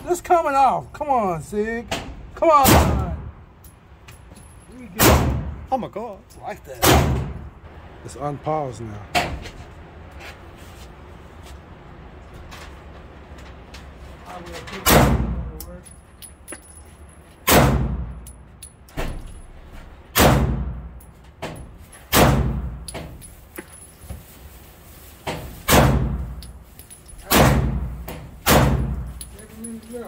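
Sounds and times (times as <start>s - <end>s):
gunshots echoing indoors: 17.5s - 18.1s, 20.2s - 20.8s, 27.3s - 29.0s.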